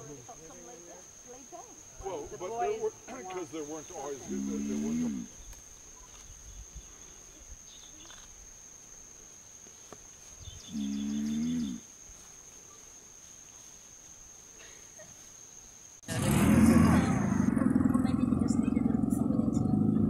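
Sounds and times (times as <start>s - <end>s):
tortoise bellowing: 4.1s - 5.4s, 10.6s - 11.9s, 16.0s - 20.0s.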